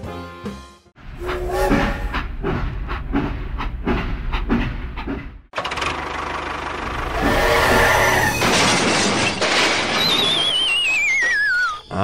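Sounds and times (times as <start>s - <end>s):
engine running with fast rattle: 5.0s - 9.6s.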